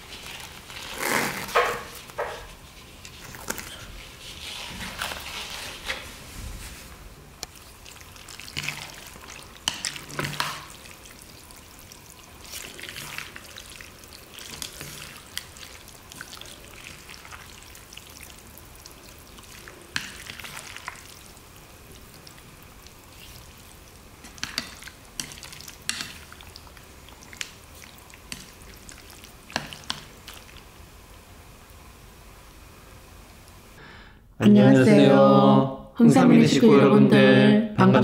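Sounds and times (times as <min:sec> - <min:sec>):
wet squishy noodle mixing: 0:00.0 - 0:06.8, 0:07.4 - 0:31.0.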